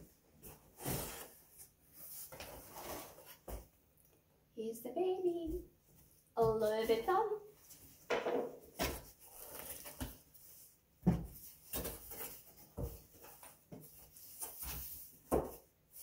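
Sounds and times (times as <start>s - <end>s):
cardboard box rustling and scraping: 0.5s - 3.6s.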